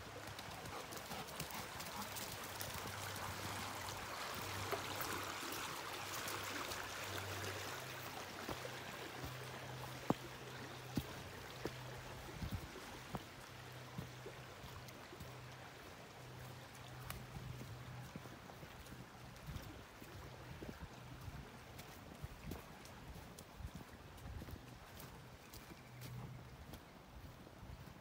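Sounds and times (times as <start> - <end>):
creek water running: 0.0 - 28.0
footsteps on forest floor: 8.1 - 13.3.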